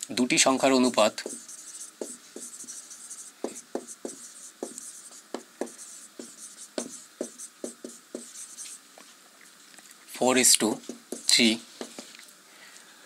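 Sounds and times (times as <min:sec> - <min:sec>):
marker squeaking on whiteboard: 0:00.9 - 0:08.8, 0:10.8 - 0:11.6.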